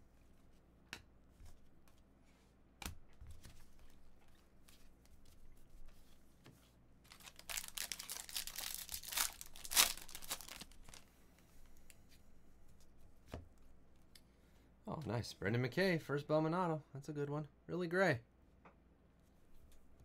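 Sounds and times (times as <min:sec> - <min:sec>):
wrapper tearing and crinkling: 0:07.1 - 0:11.0.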